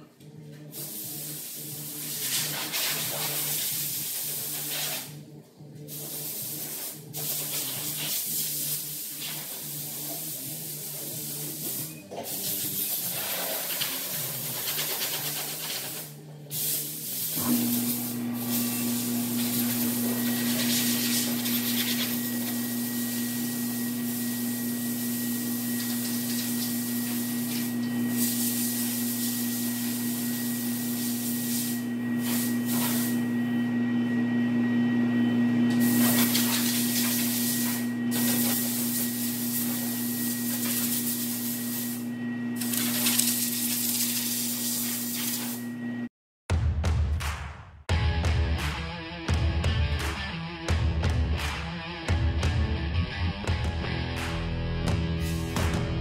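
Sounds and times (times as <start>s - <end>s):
air gun hissing in bursts: 0.7s - 5.2s, 5.8s - 33.4s, 35.8s - 45.7s
low machine hum: 17.4s - 44.0s.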